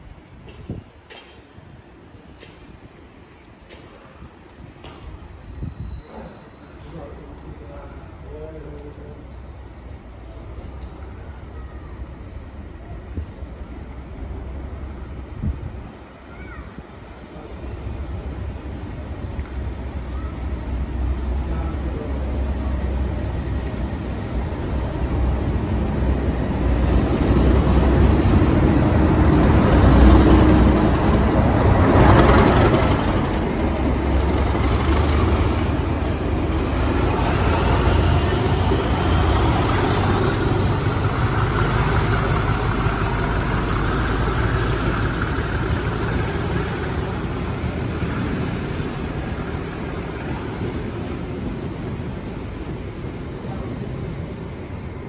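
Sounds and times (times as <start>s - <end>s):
diesel locomotive passing: 0.0s - 55.0s
train coaches rolling on rails: 0.0s - 55.0s.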